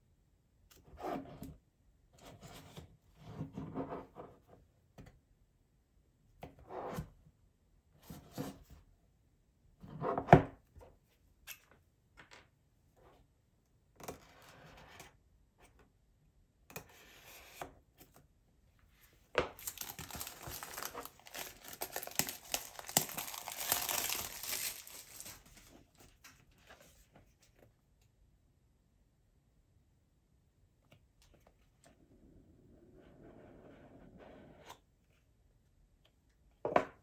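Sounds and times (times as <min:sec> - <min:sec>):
wrapping crinkling and tearing: 0:19.6 - 0:26.0.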